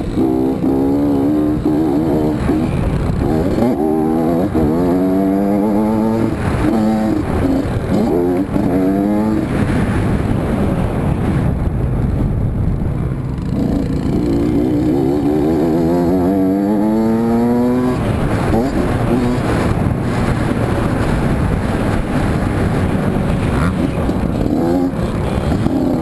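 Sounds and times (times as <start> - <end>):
two-stroke motorcycle engine revving: 0.0 - 11.5, 13.1 - 26.0
wind rumble on camera: 0.0 - 26.0.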